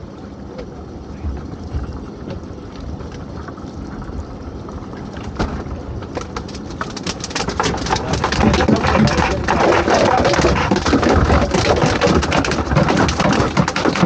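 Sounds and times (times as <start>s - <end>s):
low steady rumble: 0.0s - 14.0s
lobster pots rattling and clattering: 5.2s - 14.0s.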